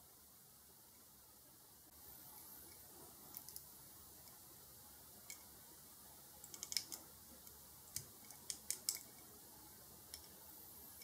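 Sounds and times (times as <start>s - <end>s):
fingers handling toy car clicks: 6.5s - 7.0s.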